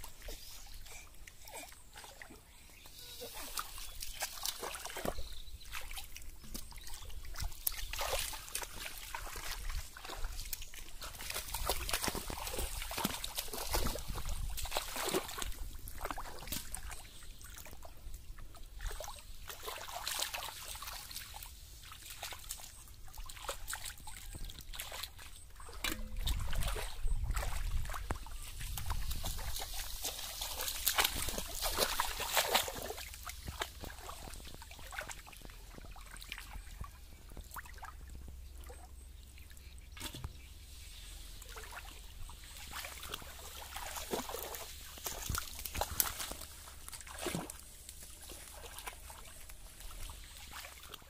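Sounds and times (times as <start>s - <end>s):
muddy water splashing: 0.0s - 51.0s.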